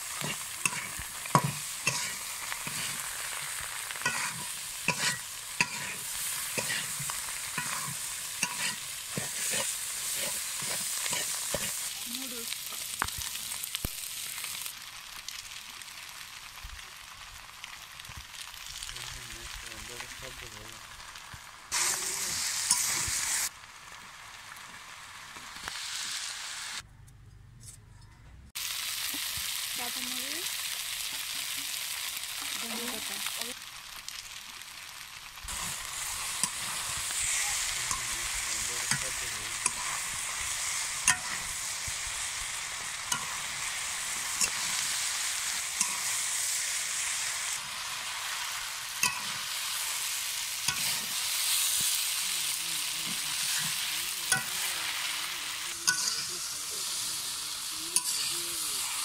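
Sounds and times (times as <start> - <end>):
metal spatula scraping wok: 0.0 - 12.0, 21.8 - 23.5, 35.5 - 47.6, 48.2 - 51.9, 53.0 - 59.0
noodles sizzling in a wok: 0.0 - 26.8, 28.6 - 59.0.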